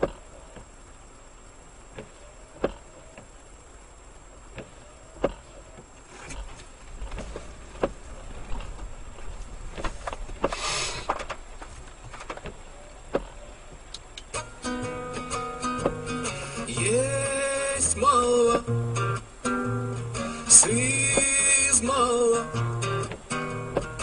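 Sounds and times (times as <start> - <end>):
faint wiper motor whine: 0.0 - 24.0
tyre noise on wet road: 0.0 - 24.0
windscreen wipers thumping: 0.0 - 24.0
hiss of spray: 10.4 - 11.1.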